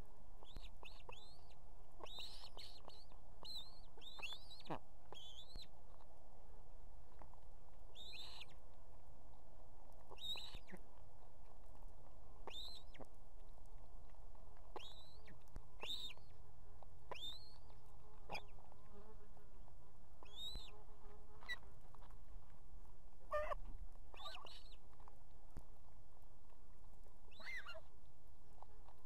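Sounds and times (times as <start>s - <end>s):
ospreys chirping: 0.4s - 5.7s, 10.1s - 10.8s, 12.5s - 13.0s, 14.8s - 16.3s, 17.1s - 17.7s, 20.2s - 20.8s.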